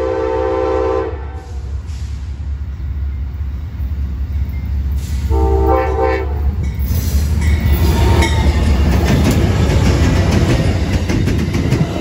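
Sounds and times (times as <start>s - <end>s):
locomotive horn blast: 0.0s - 1.7s, 5.2s - 6.5s
train passing with rushing noise: 0.0s - 12.0s
wheels clicking on rails: 6.6s - 12.0s.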